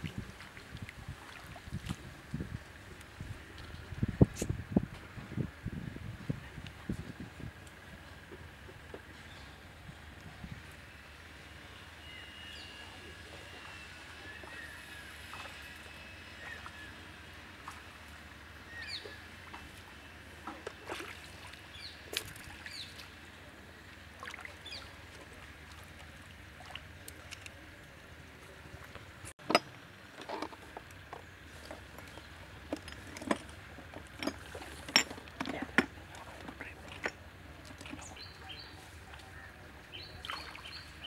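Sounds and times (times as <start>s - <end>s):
splashing in muddy water: 0.0s - 2.6s, 18.8s - 27.8s, 31.4s - 39.3s, 39.9s - 41.0s
outdoor background noise: 0.0s - 41.0s.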